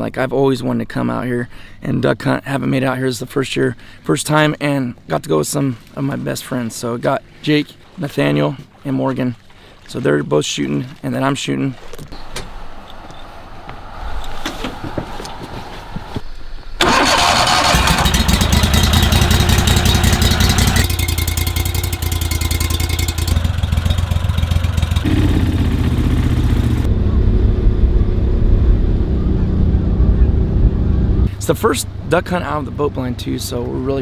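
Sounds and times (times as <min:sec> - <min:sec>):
boat motor running: 0:17.2 - 0:34.0.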